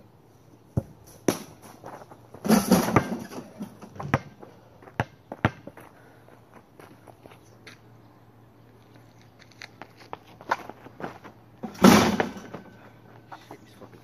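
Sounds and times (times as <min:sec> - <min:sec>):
basketball bouncing on asphalt: 0:00.7 - 0:07.0.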